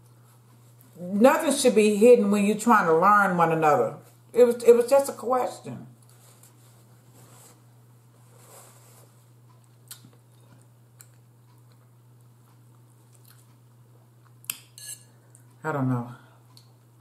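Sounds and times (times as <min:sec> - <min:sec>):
steady low hum: 0:00.0 - 0:17.0
quiet chewing: 0:09.1 - 0:14.6.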